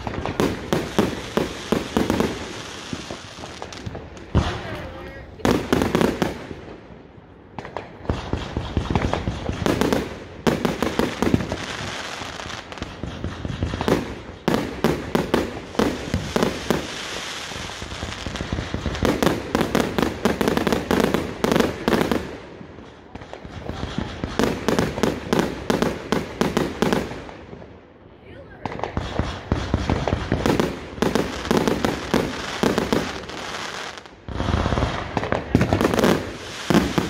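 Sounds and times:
fireworks bangs and crackles: 0.0s - 37.0s.

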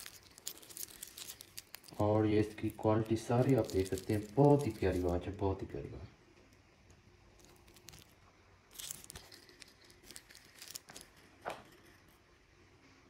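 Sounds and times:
watch bracelet clicks and rustles: 0.0s - 5.2s, 7.4s - 11.6s.

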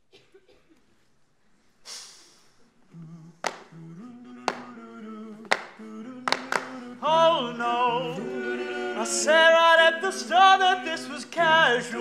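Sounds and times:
breathy hiss: 1.8s - 2.8s
male voices singing a cappella: 2.9s - 12.0s.

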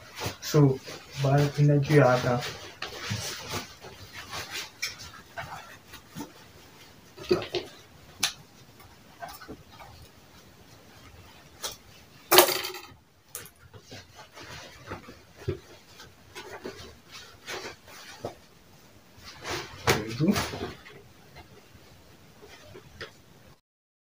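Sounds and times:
tools clattering: 12.3s - 13.6s.

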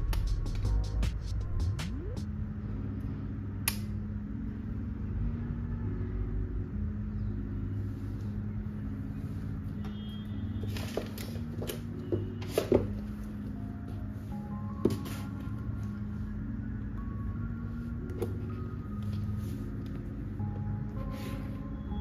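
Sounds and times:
low steady hum: 0.0s - 22.0s
soft background music: 0.0s - 22.0s.

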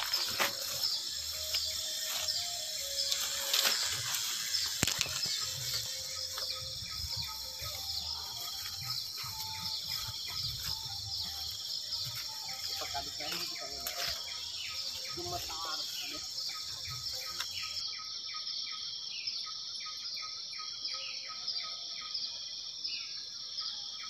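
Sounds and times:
footsteps brushing through plants: 0.0s - 17.8s
bird calls: 0.0s - 24.0s
insects chirping: 0.0s - 24.0s.

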